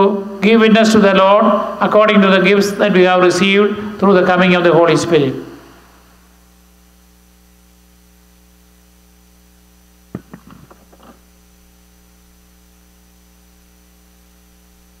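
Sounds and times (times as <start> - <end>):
electrical mains hum: 0.0 - 15.0
book knocking on lectern: 10.1 - 11.2.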